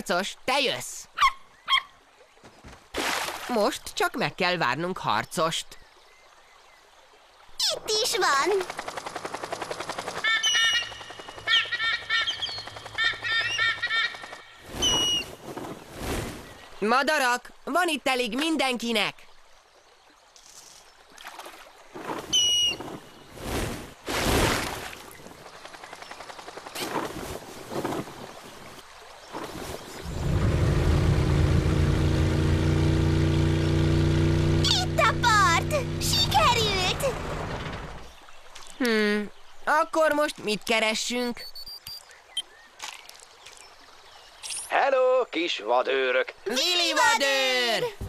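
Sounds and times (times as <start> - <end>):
cartoon motorboat engine hum: 30.0 - 38.1.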